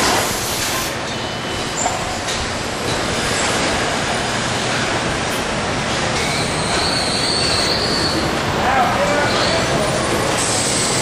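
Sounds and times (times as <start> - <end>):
high metallic squeal: 6.2 - 8.3.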